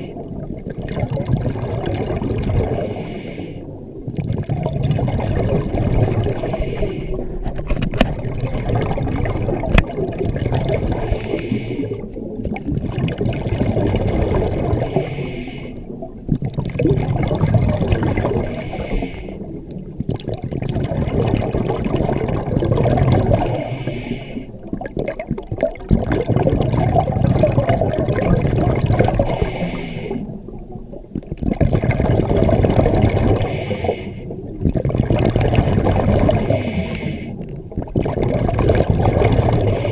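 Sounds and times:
diver breathing through regulator: 2.7 - 3.7, 6.2 - 7.4, 10.9 - 12.2, 14.7 - 16.0, 18.3 - 19.6, 23.3 - 24.6, 29.2 - 30.4, 33.3 - 34.4, 36.3 - 37.5, 39.6 - 39.9.

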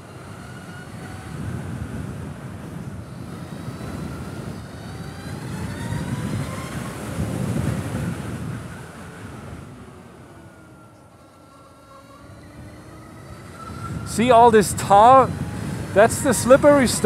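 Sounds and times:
wind buffeting microphone: 0.1 - 11.4, 12.2 - 17.0
electric motor whine: 10.8 - 17.0.

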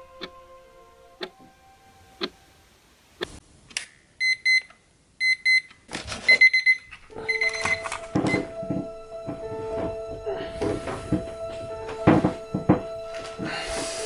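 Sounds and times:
alarm clock beeping: 6.3 - 14.0
knocks and thumps: 8.0 - 13.8.

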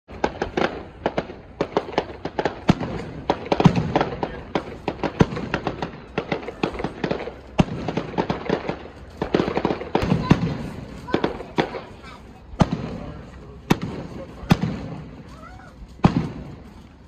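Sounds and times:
fireworks bangs and crackles: 0.1 - 17.0
loud fireworks booms: 0.1 - 17.0.

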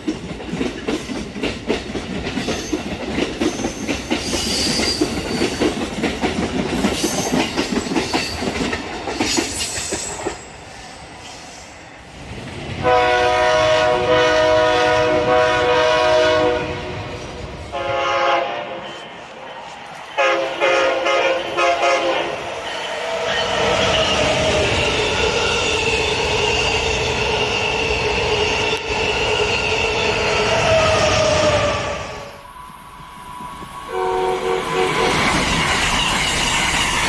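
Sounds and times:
train wheels clattering over rails: 0.0 - 10.6, 34.7 - 37.0
locomotive air horn chord: 12.8 - 18.9, 20.2 - 22.4, 33.9 - 35.2.

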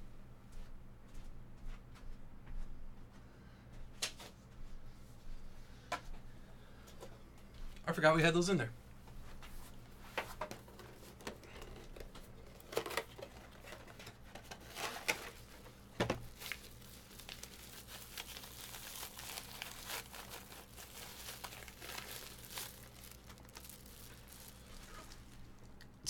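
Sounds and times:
packaging crinkling: 10.5 - 26.0.

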